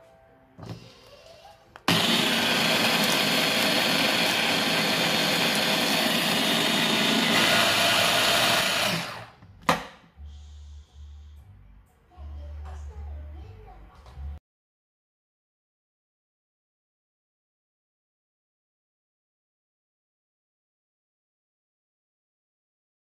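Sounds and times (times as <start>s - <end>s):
electric food chopper running: 1.8s - 9.4s.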